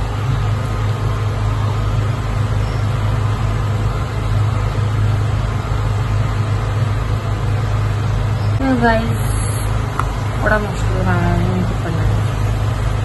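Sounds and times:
low mechanical hum: 0.0s - 13.0s
even hiss: 7.8s - 13.0s.

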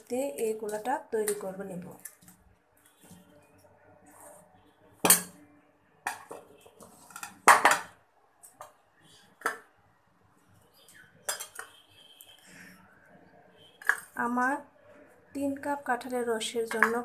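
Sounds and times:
ceramic dishes clinking: 11.2s - 11.7s.

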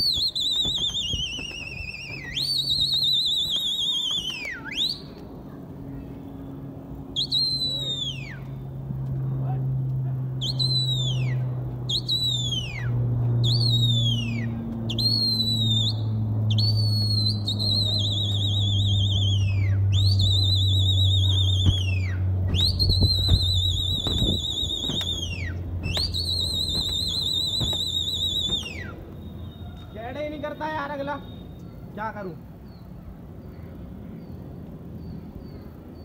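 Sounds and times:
person whistling shrilly: 0.0s - 5.2s, 7.2s - 8.5s, 10.4s - 29.7s
steady low hum: 0.0s - 29.9s.

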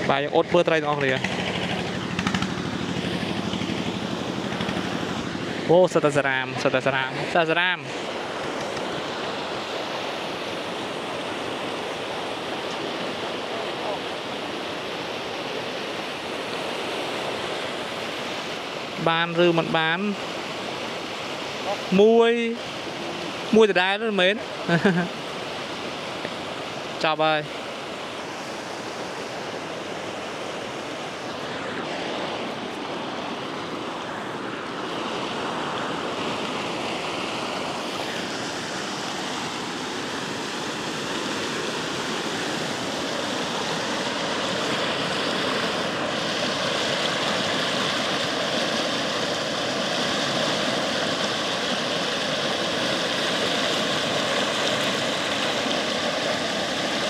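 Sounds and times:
steady rushing noise: 0.0s - 57.0s
motor hum: 0.7s - 5.7s.

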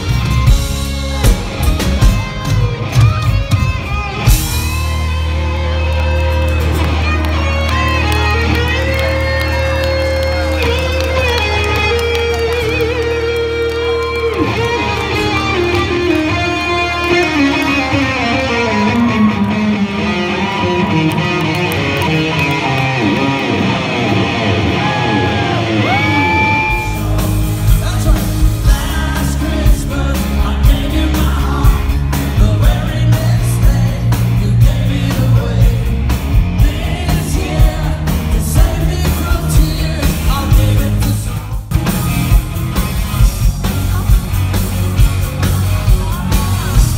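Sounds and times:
drums steady beat: 0.0s - 5.2s, 26.5s - 46.9s
electric guitar bending notes: 0.0s - 46.9s
live rock band playing: 0.0s - 46.9s.

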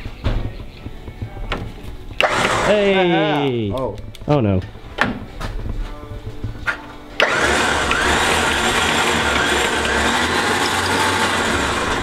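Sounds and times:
electric winch whirring: 2.2s - 3.0s, 7.2s - 12.0s.

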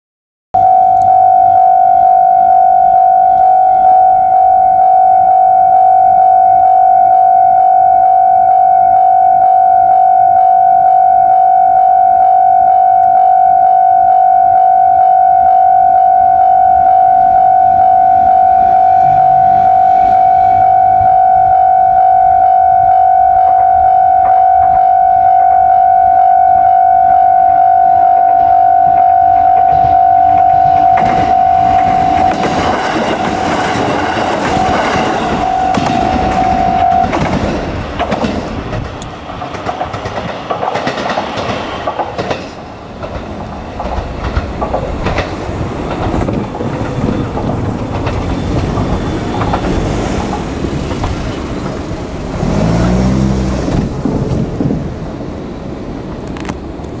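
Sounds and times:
level crossing bell ringing: 0.6s - 32.3s
diesel railcar engine: 0.6s - 57.0s
railcar wheel clatter: 28.3s - 57.0s.

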